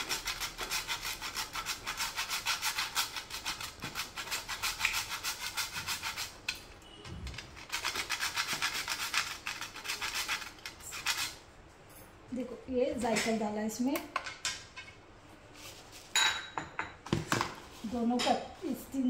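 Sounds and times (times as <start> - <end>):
nutmeg grating on metal grater: 0.0 - 6.5, 7.4 - 11.4.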